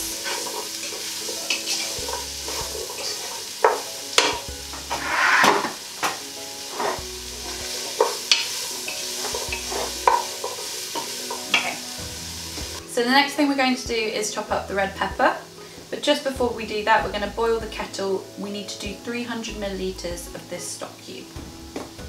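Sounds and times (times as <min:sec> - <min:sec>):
wooden spoon scraping a pot: 0:00.0 - 0:05.8, 0:06.7 - 0:11.8
vegetables sizzling in oil: 0:00.0 - 0:22.0.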